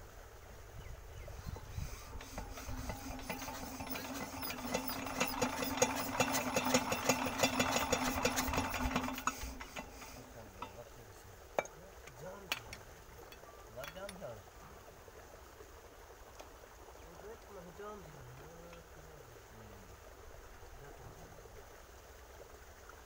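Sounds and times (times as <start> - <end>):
diesel engine knocking: 2.2 - 10.0.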